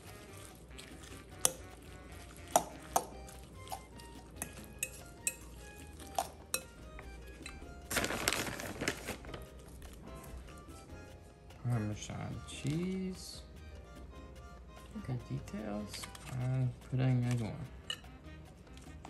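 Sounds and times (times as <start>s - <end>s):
metal utensils clinking on dishes: 4.4s - 6.8s, 15.9s - 18.2s.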